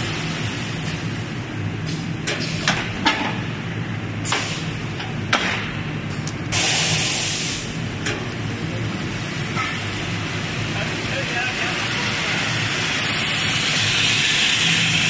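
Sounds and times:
compressed air hiss: 6.5s - 7.8s.

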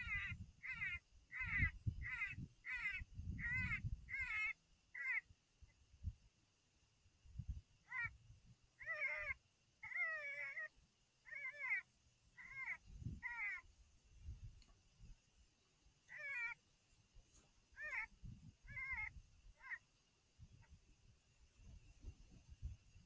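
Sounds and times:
wind thumps on microphone: 21.6s - 23.0s.

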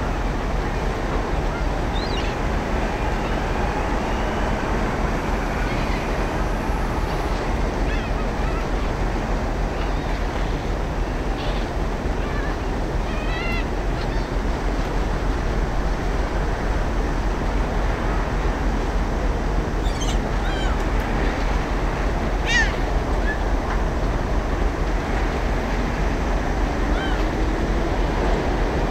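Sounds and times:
water rushing: 0.0s - 28.9s
wind: 0.0s - 28.9s
seagulls calling: 0.1s - 14.5s, 19.8s - 24.0s, 26.6s - 27.5s.

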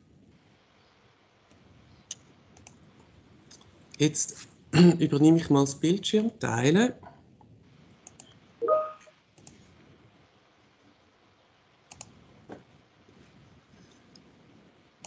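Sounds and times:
computer mouse clicks: 2.1s - 2.8s, 8.0s - 8.4s, 11.9s - 12.2s.

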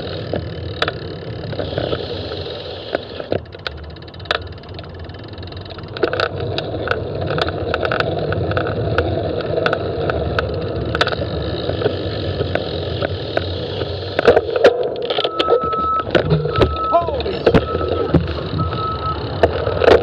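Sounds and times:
wind and road rumble: 0.0s - 20.0s
sharp rattling clicks: 0.1s - 15.4s
truck reverse alarm beep: 15.2s - 19.3s
diesel truck engine running: 15.2s - 20.0s.

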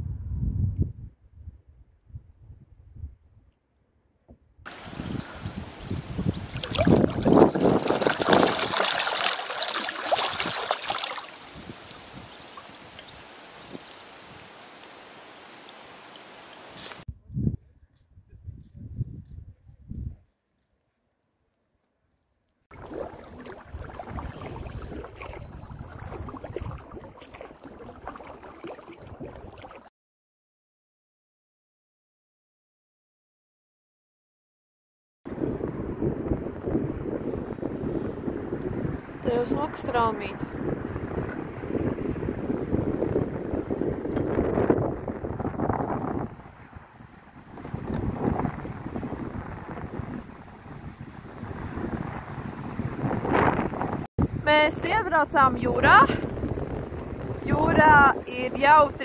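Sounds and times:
wind rumble on microphone: 0.0s - 3.6s, 4.5s - 14.6s, 16.8s - 20.4s, 22.7s - 29.8s, 35.3s - 59.0s
water trickling: 4.7s - 17.0s, 22.7s - 29.9s
paddle strokes splashing: 6.4s - 17.0s, 22.7s - 29.9s.

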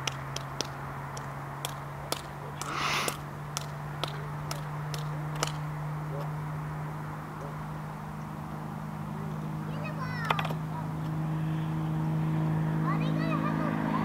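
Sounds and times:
distant propeller plane engine drone: 0.0s - 14.0s
brief hiss: 2.7s - 3.2s.

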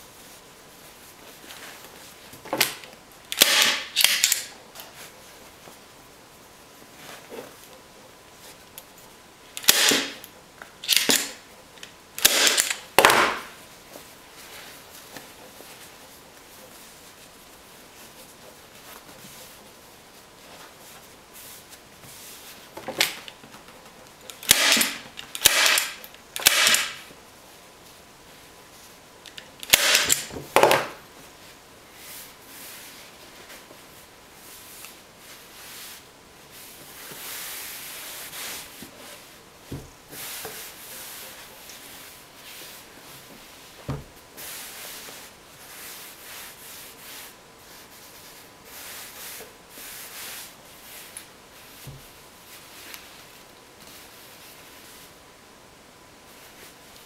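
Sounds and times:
staple gun snapping: 2.6s - 4.5s, 9.6s - 10.2s, 10.8s - 11.3s, 12.2s - 13.4s, 24.4s - 27.0s, 29.3s - 30.3s.

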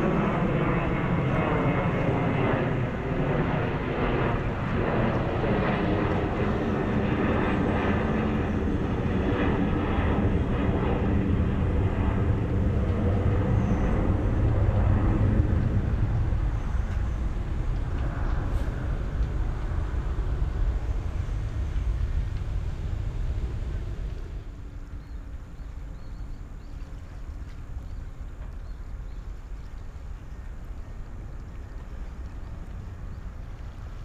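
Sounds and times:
jet engines rumbling: 0.0s - 34.0s.

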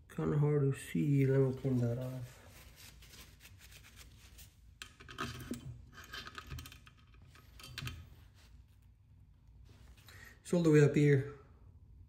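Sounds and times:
towel rustling and rubbing: 1.2s - 4.8s, 8.0s - 9.0s, 9.6s - 10.1s.

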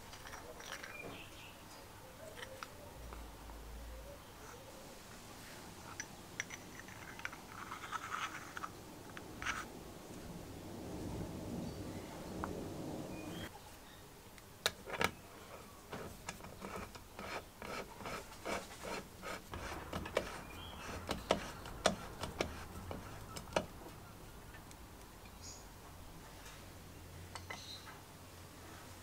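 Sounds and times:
fingers rubbing metal chuck: 15.9s - 23.8s.

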